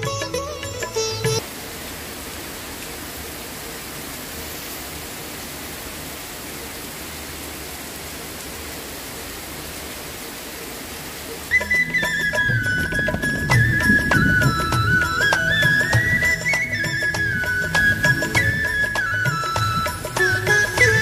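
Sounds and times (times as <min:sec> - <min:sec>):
heavy rain falling: 0:00.0 - 0:21.0
flute melody: 0:11.5 - 0:21.0.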